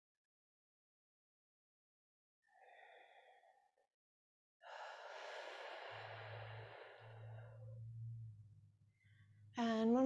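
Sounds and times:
low steady hum: 0:05.0 - 0:10.0.

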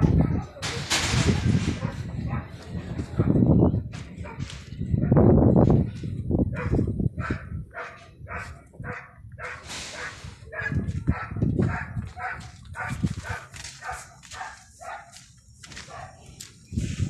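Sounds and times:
dog barking: 0:00.0 - 0:00.7, 0:01.8 - 0:02.6, 0:04.2 - 0:05.3, 0:06.5 - 0:15.2, 0:15.8 - 0:16.3.

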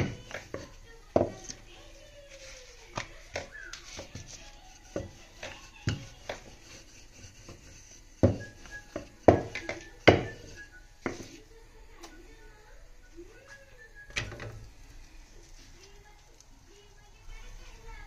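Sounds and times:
rolling pin knocking on wood: 0:00.0 - 0:01.4, 0:03.0 - 0:06.8, 0:07.4 - 0:11.3.

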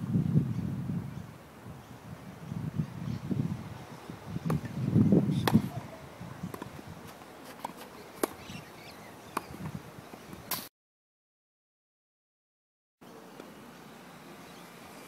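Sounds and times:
wind rumble on microphone: 0:00.0 - 0:07.2, 0:09.5 - 0:10.5
tennis ball hits and bounces: 0:04.4 - 0:08.7, 0:09.3 - 0:10.7.

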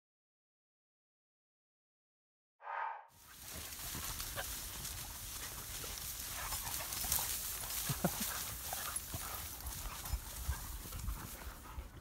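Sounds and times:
dry stalks rustling: 0:03.2 - 0:12.0.

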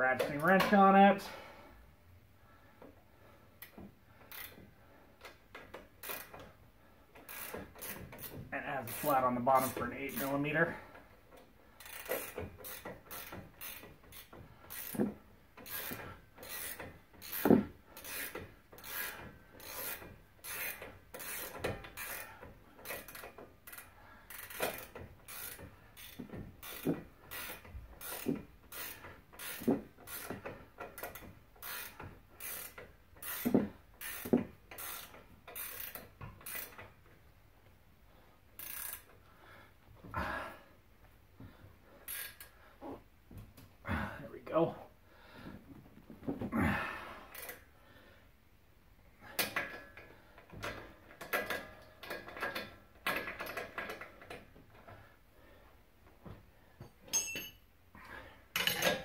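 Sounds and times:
ratcheting wrench clicking: 0:03.6 - 0:04.6, 0:05.2 - 0:06.5, 0:07.1 - 0:11.1, 0:11.8 - 0:37.1, 0:38.6 - 0:39.2, 0:42.0 - 0:42.6, 0:47.3 - 0:47.6.

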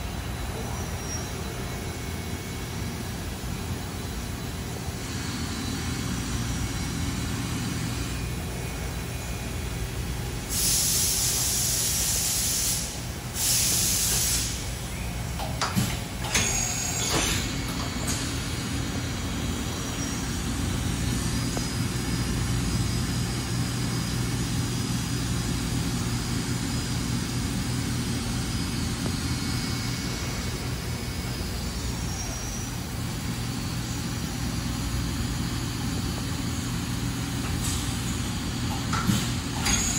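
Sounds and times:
compressed air hiss: 0:10.4 - 0:14.7.

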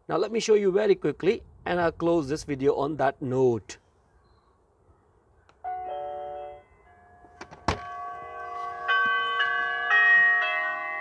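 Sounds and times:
bell-like doorbell chime: 0:05.6 - 0:11.0.

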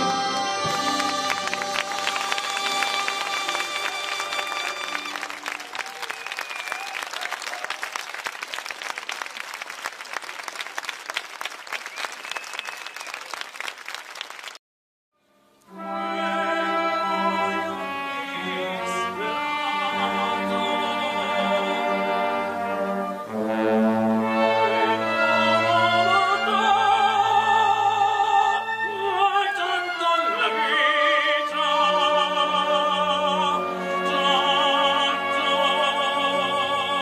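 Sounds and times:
orchestra playing chords: 0:00.0 - 0:05.7, 0:15.2 - 0:37.0
audience applause: 0:00.4 - 0:14.6.

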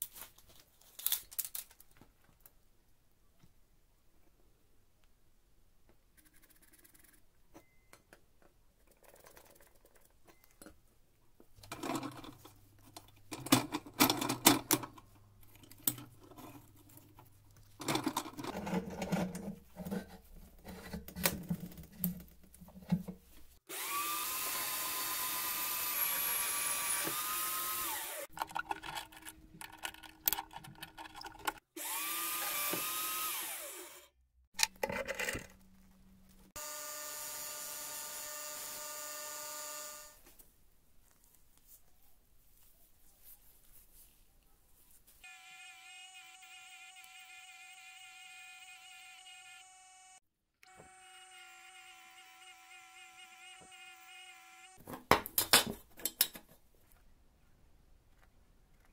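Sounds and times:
metal tools clicking and knocking: 0:11.6 - 0:17.2, 0:55.3 - 0:56.5
power tool high whine: 0:23.7 - 0:28.3, 0:31.8 - 0:34.1, 0:36.6 - 0:40.2, 0:45.2 - 0:54.8.

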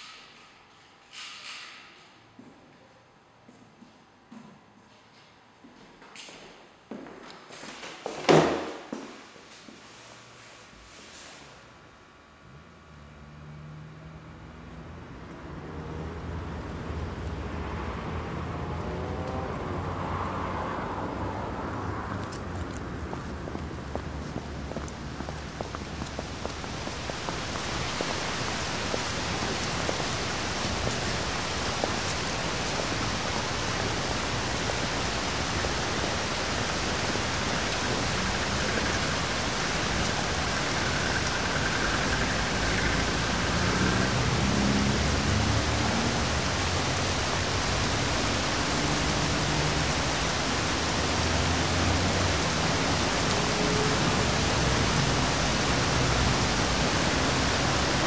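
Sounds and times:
steady rain hiss: 0:07.8 - 0:58.0
faint low drones: 0:23.2 - 0:48.5.

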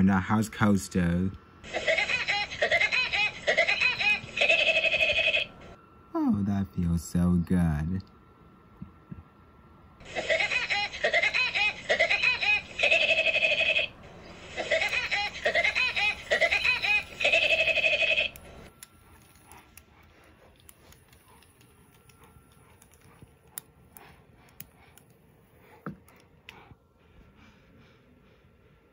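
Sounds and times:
cartoon bird laugh: 0:01.7 - 0:05.5, 0:10.0 - 0:18.4.

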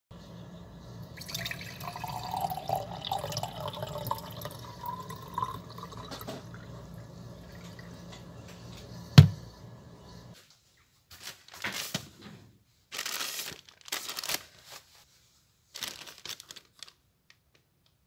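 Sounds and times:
steady low hum: 0:00.2 - 0:10.4
water poured into glass jar: 0:01.2 - 0:06.8.

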